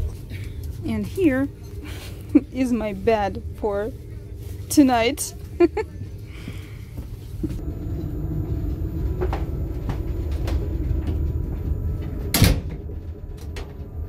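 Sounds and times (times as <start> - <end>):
train carriage rumbling: 0.0 - 14.0
door banging shut: 12.0 - 13.9.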